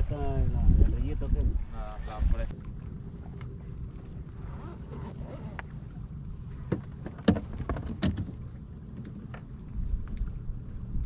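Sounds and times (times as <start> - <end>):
water around a boat: 0.0 - 11.0
wind: 0.0 - 11.0.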